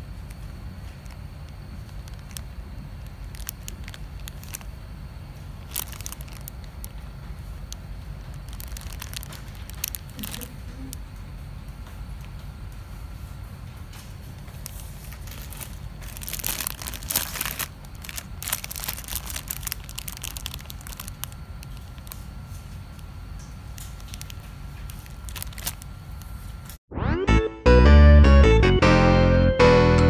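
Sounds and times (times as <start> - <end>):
steady low hum: 0.0 - 26.8
plastic wrapper crinkling: 1.0 - 4.8, 5.4 - 11.0, 14.5 - 26.8.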